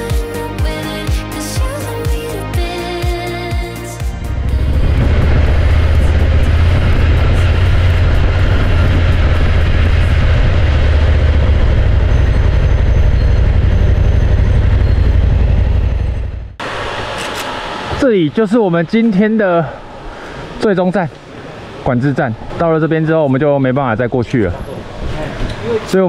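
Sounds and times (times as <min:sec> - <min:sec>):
motorcycle engine running: 0:04.0 - 0:16.7.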